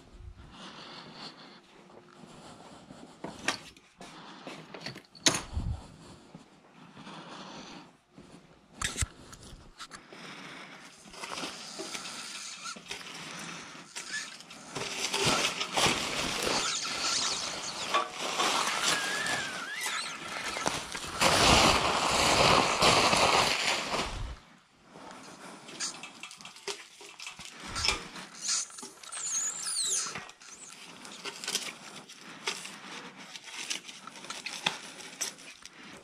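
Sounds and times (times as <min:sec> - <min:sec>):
plastic packaging crinkling: 0:11.1 - 0:24.5.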